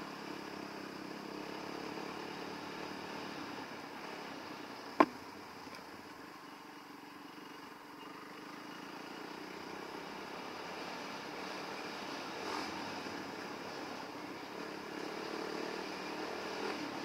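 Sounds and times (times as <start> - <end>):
dirt bike engine running: 4.8 - 6.0.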